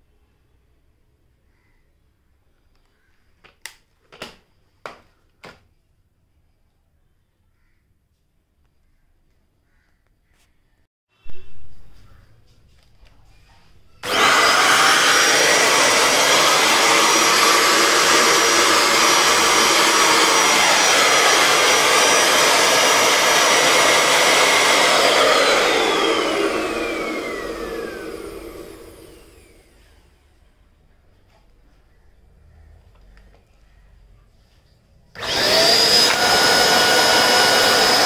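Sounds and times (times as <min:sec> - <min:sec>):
vacuum switch: 0:14.0 - 0:29.6, 0:35.2 - 0:38.0
handheld vacuum cleaner whining: 0:14.0 - 0:30.1, 0:35.2 - 0:38.0.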